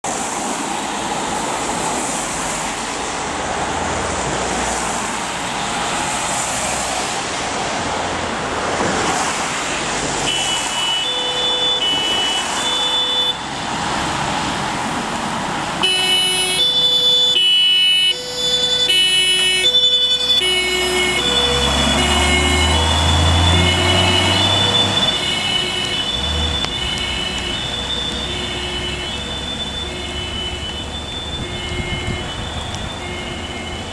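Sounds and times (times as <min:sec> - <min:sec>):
heavy rain on pavement: 0:00.0 - 0:33.9
diesel engine rumbling: 0:00.4 - 0:33.9
two-tone fire engine siren: 0:10.3 - 0:13.6, 0:15.8 - 0:33.9.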